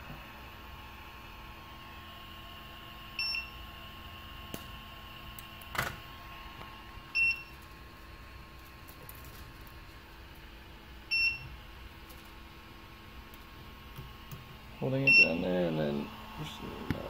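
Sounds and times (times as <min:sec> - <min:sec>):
faint steady hum: 0:00.0 - 0:17.0
printer high beep: 0:03.1 - 0:03.7, 0:07.1 - 0:07.6, 0:11.1 - 0:11.6, 0:15.0 - 0:15.6.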